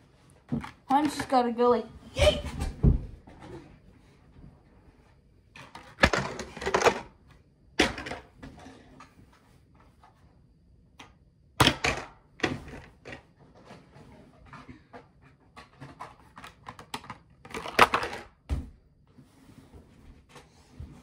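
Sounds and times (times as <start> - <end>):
objects knocking and clattering: 0.4 - 1.5, 5.5 - 9.4, 11.6 - 18.8.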